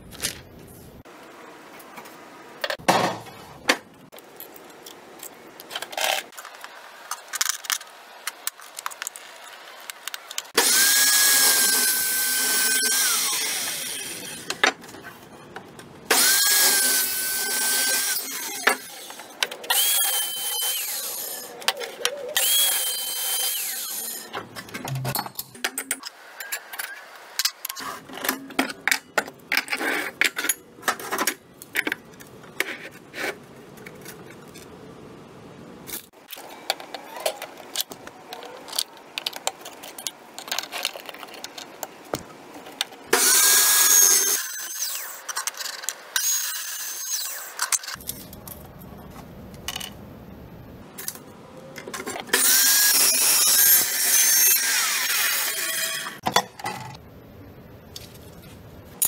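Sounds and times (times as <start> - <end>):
chop saw cutting steel: 10.6 - 14.6, 16.1 - 21.5, 43.1 - 45.4, 46.2 - 48.0, 52.3 - 56.2.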